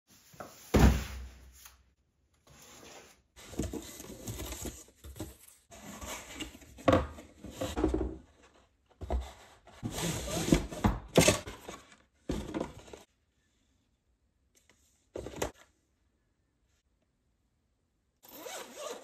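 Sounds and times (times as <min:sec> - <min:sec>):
cardboard rustling and scraping: 0:02.5 - 0:13.1.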